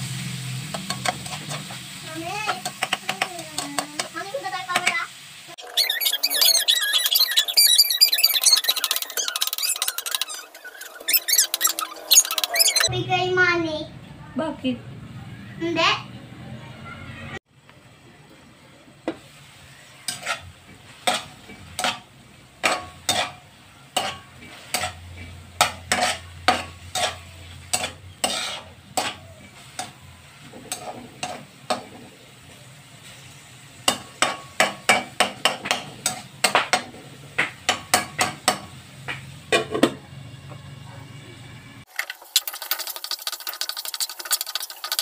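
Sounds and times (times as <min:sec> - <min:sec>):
faint sizzle: 0:00.0 - 0:07.3, 0:12.9 - 0:45.0
spatula scraping metal wok: 0:00.3 - 0:05.0, 0:05.6 - 0:12.9, 0:19.6 - 0:32.3, 0:33.0 - 0:38.7, 0:42.0 - 0:45.0.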